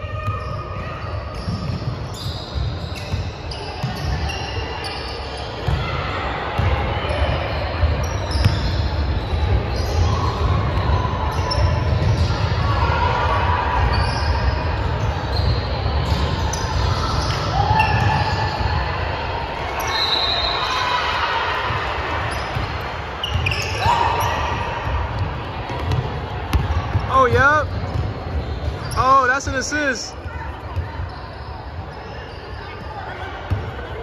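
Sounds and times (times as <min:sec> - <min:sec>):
sneakers squeaking: 0:00.0 - 0:34.0
basketball bouncing on hardwood floor: 0:25.2 - 0:27.0.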